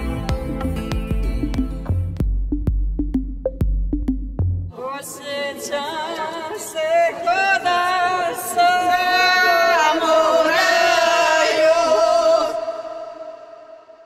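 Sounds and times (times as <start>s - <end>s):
layered voices singing long notes: 8.6s - 14.0s.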